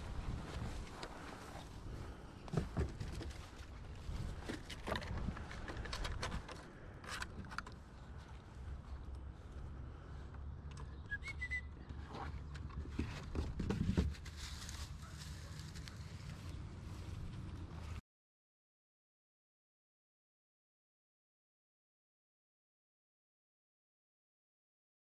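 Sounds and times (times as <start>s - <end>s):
puppy paws tapping on wooden boards: 12.4s - 14.3s.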